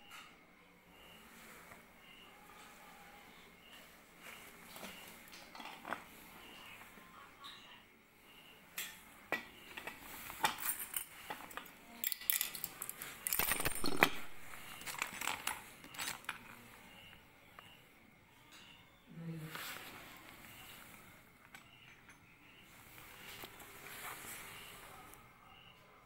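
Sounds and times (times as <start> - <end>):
metal clinking and clattering: 9.8 - 16.4.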